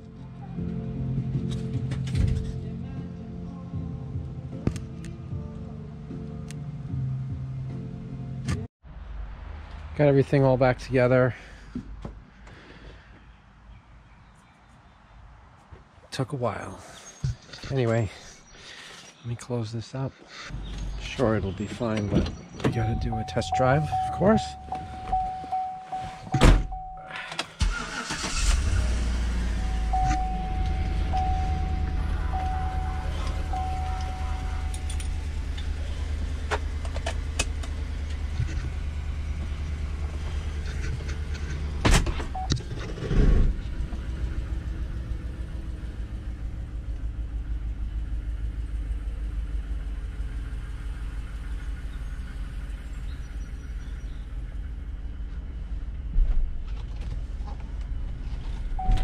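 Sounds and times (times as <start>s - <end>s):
car engine cranking and starting: 20.5s - 59.0s
dashboard warning chime: 21.5s - 28.0s, 29.5s - 35.4s, 58.8s - 59.0s
door slam: 26.3s - 26.8s.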